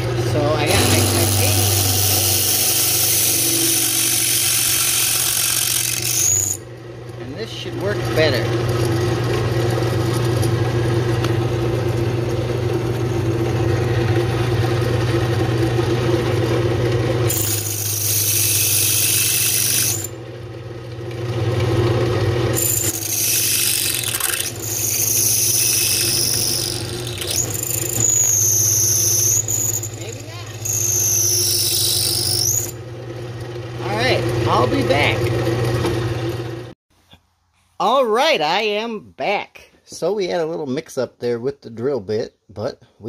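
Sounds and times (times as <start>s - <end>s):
drill press motor humming: 0.0s - 36.8s
drill bit squealing into steel: 0.7s - 6.6s, 17.3s - 20.2s, 22.6s - 32.8s.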